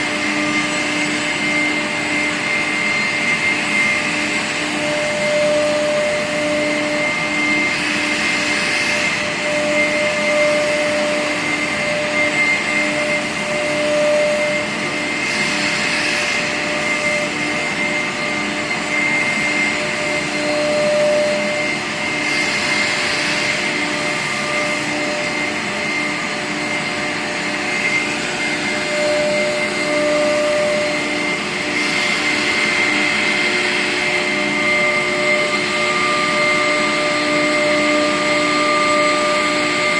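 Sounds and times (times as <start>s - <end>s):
router spindles whining: 0.0s - 39.9s
rushing cutting noise: 0.0s - 39.9s.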